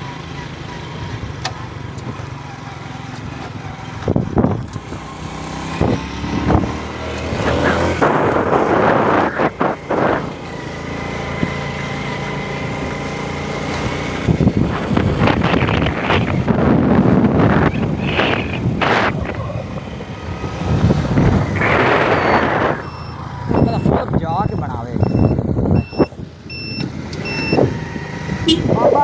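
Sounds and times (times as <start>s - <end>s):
motorcycle engine running: 0.0s - 29.0s
wind noise on microphone: 3.9s - 10.6s, 14.0s - 29.0s.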